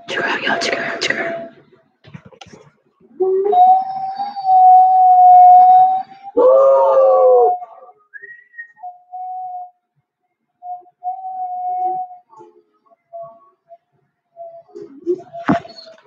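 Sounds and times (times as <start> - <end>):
dog howling: 3.1 - 7.9.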